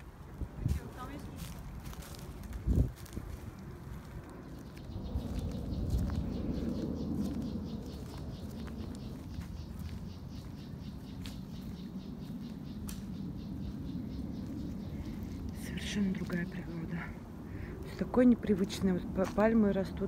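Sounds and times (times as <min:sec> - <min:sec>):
faint high bird chirps: 0:04.5 - 0:16.8.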